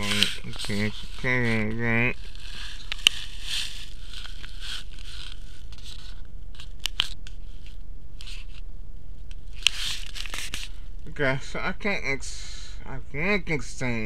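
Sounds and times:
handling rustling and scraping: 0.0s - 10.9s
steady low hum: 0.0s - 14.0s.

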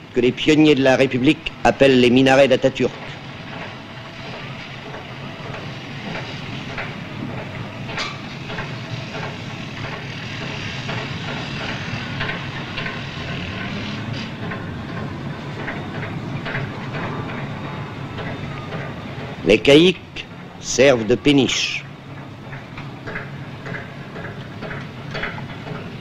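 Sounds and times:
industrial machinery rumble and hiss: 0.0s - 26.0s
metallic clanks and knocks: 2.9s - 19.7s, 22.1s - 26.0s.

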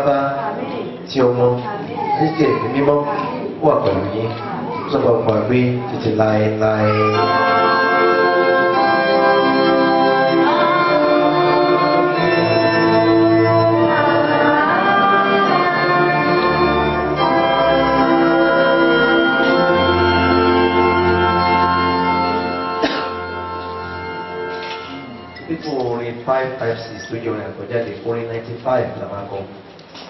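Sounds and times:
organ music sustained chords: 6.4s - 27.7s.

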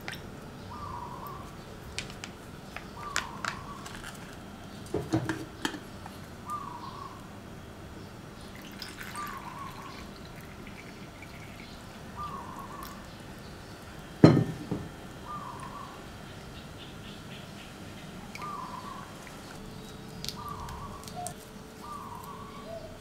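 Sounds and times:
water pouring into plastic sachet: 8.6s - 11.6s.

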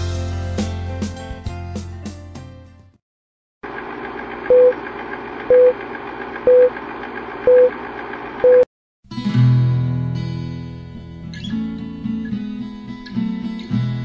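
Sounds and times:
film projector whirring: 3.6s - 8.4s
short beeps: 4.5s - 4.8s, 6.5s - 6.7s, 7.5s - 7.7s, 8.4s - 8.7s
acoustic guitar music: 9.1s - 14.0s.

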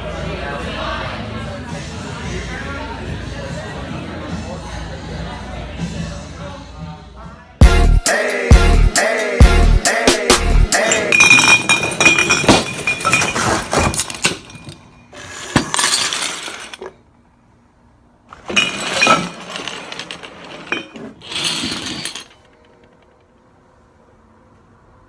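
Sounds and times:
glass clinking: 10.8s - 16.9s, 18.5s - 22.7s.

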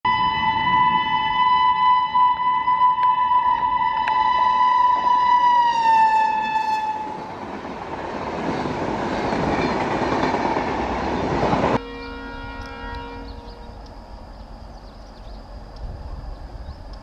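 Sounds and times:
locomotive horn long tone: 0.1s - 7.3s, 11.7s - 13.9s
train coaches rattling past: 3.9s - 17.0s.

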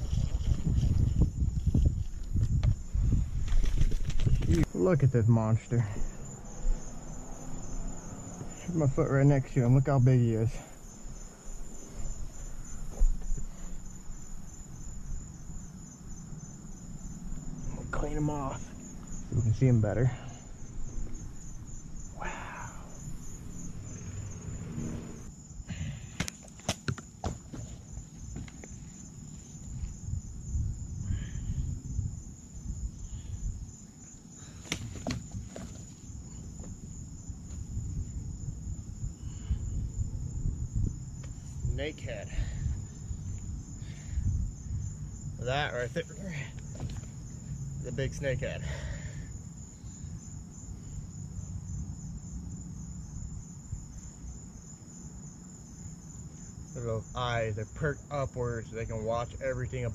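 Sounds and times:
crickets chirping: 0.0s - 59.9s
insects trilling: 0.0s - 59.9s
dull thump: 12.9s - 13.6s, 34.6s - 35.9s, 46.7s - 47.2s.

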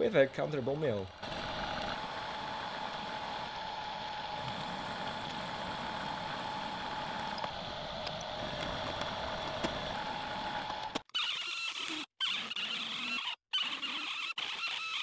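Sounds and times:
mill cutting steel: 0.0s - 11.0s
milling machine spindle whine: 0.0s - 11.0s.

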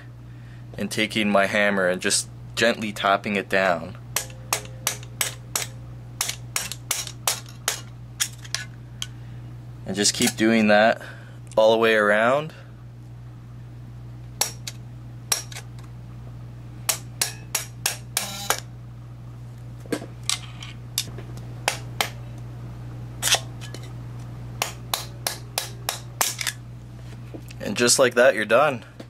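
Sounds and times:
steady low hum: 0.0s - 29.0s
hammer tapping metal: 4.1s - 7.9s, 16.9s - 18.3s.

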